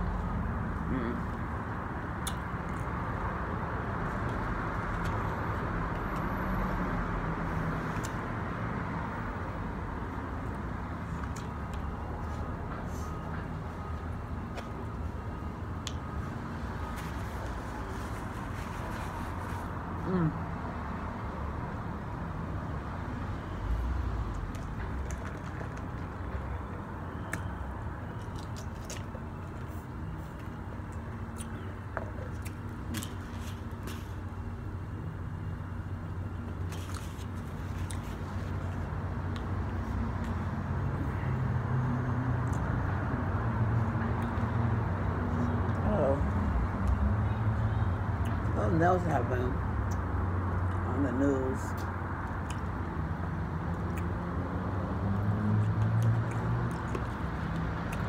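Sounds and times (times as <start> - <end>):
street traffic rumble: 0.0 - 58.0.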